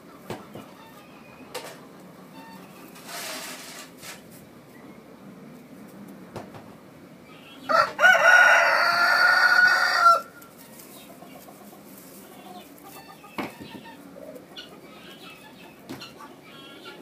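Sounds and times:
rooster crowing: 7.6 - 10.4.

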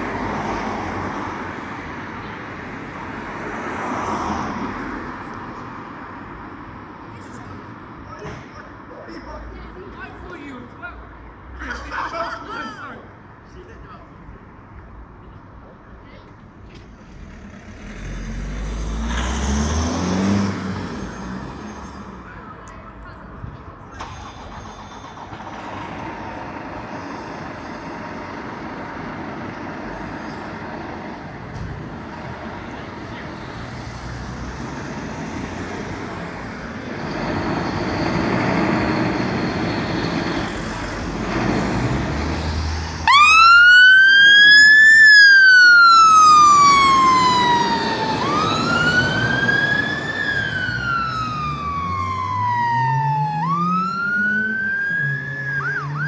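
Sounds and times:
fire engine diesel engine: 0.0 - 56.0
wailing siren: 43.0 - 56.0.

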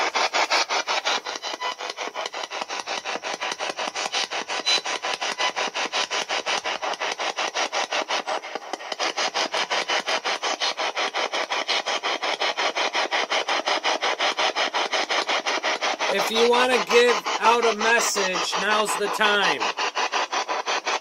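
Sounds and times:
chopped radio static hiss: 16.1 - 19.9.

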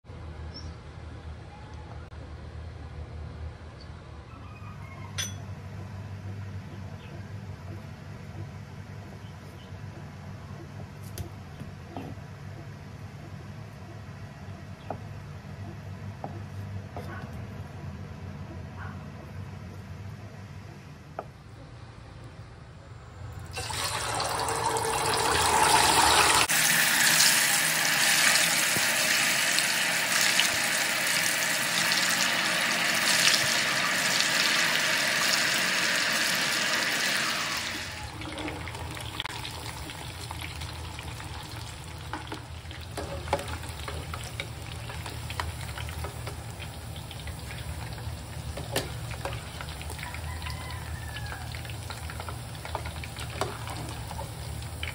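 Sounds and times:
oil sizzling while deep-frying: 23.5 - 54.9.

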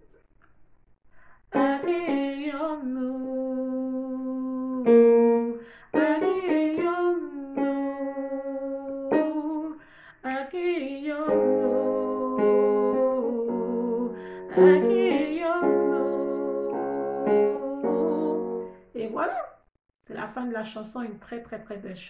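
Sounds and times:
woman singing slow melody: 1.5 - 18.8.

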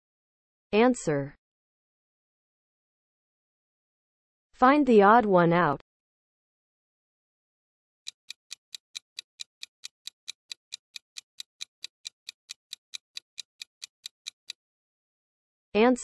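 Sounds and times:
clock ticks: 8.1 - 14.6.

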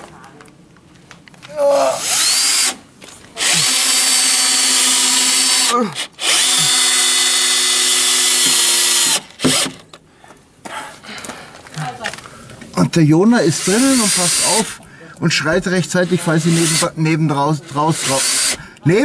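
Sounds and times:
cordless drill motor whine: 2.0 - 2.8, 3.4 - 9.9, 13.6 - 14.6, 17.6 - 18.6.

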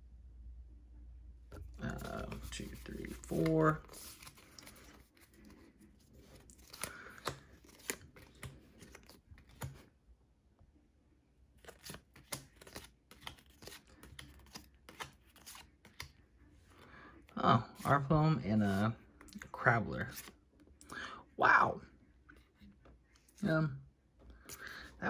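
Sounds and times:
trading cards flipped by hand: 1.6 - 9.9, 11.6 - 16.2, 18.7 - 20.4.

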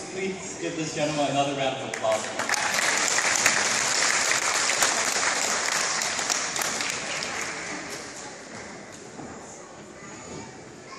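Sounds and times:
audience applauding: 1.9 - 8.2.

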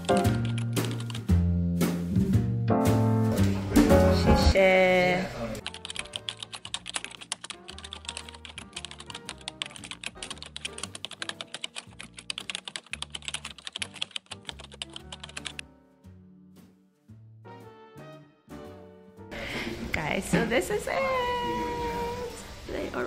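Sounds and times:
rapid keyboard typing: 0.0 - 1.3, 5.6 - 15.6
background music with bass line: 0.0 - 4.6.

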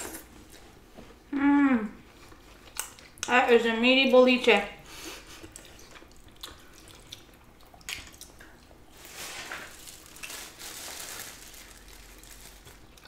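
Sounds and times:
plastic bag rustling: 8.9 - 13.0.

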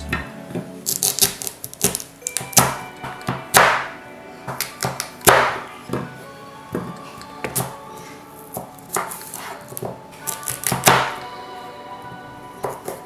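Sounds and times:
soft background music: 0.0 - 13.0
knife chopping on cutting board: 2.6 - 3.9, 4.5 - 5.6.

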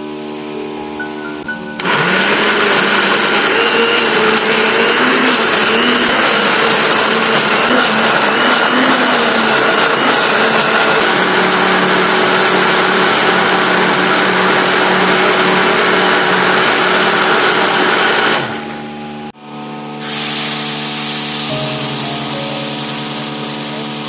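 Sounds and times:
electric blender running: 1.8 - 24.0
background music: 21.5 - 23.3.

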